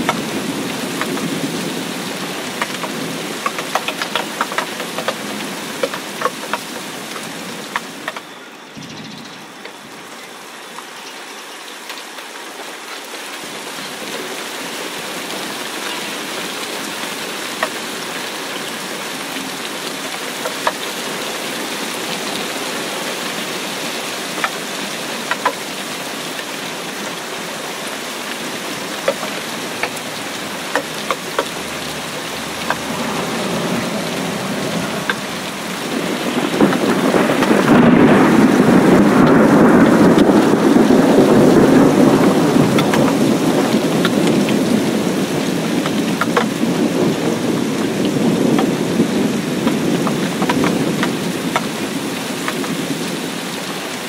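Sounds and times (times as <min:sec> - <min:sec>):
rain on puddle: 0:00.0 - 0:08.4, 0:09.4 - 0:54.0
thunder rumbling: 0:28.4 - 0:53.1.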